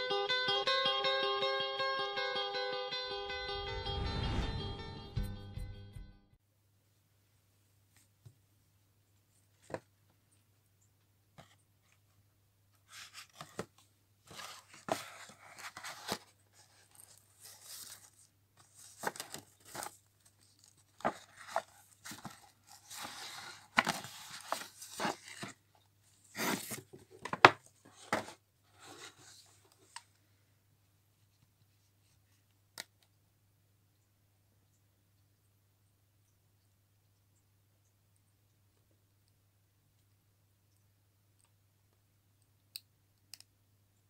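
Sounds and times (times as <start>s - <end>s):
paper bag rustling and crinkling: 12.9s - 25.6s.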